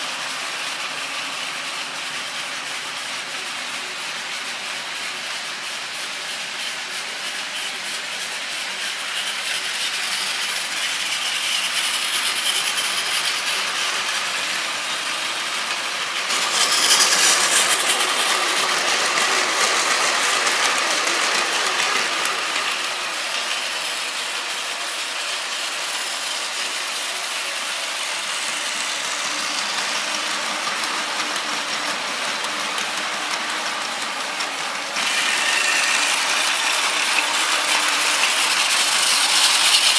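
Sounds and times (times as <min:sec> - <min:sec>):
toy trains whirring and rattling: 0:00.0 - 0:39.9.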